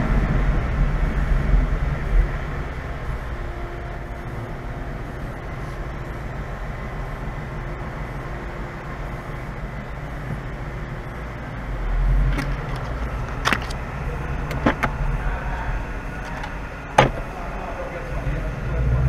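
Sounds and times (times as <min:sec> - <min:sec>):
car exhaust rumbling: 0:00.0 - 0:19.0.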